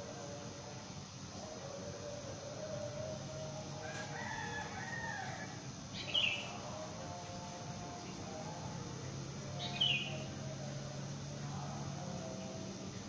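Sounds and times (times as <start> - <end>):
distant rooster crowing: 1.4 - 6.8.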